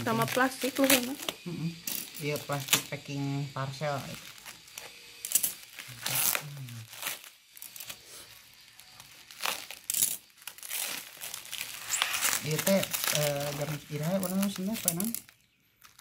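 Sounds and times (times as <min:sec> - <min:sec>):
packing tape tearing: 0:00.0 - 0:01.5, 0:02.1 - 0:03.0, 0:04.0 - 0:16.0
bubble wrap crinkling: 0:00.0 - 0:01.6, 0:02.2 - 0:16.0
scissors cutting: 0:04.0 - 0:16.0.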